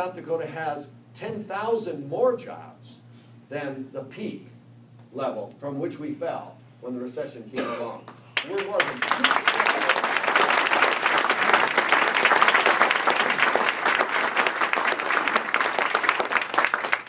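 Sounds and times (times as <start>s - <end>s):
crowd applauding: 8.4s - 17.0s.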